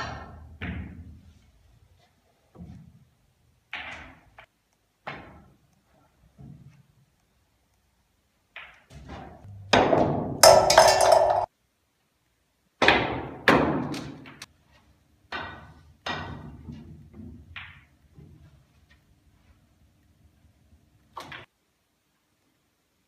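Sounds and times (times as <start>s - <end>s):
snooker balls clacking: 8.5s - 11.5s, 15.4s - 18.2s.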